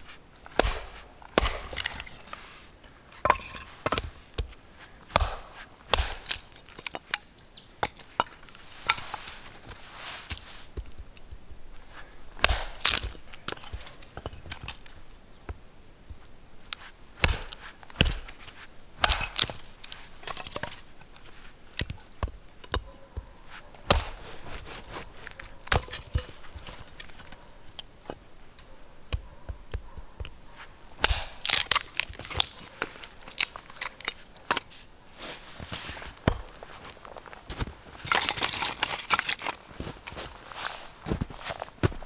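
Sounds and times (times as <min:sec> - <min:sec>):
hatchet chopping wood: 0:00.6 - 0:02.1, 0:05.1 - 0:06.5, 0:12.4 - 0:14.8, 0:17.2 - 0:18.4, 0:19.0 - 0:19.7, 0:23.8 - 0:24.2, 0:25.6 - 0:26.2, 0:31.0 - 0:32.6
footsteps crunching in snow: 0:04.1 - 0:06.3, 0:23.2 - 0:27.5, 0:34.7 - 0:42.0
wood cracking apart: 0:12.4 - 0:15.0, 0:19.0 - 0:20.9, 0:31.0 - 0:34.6.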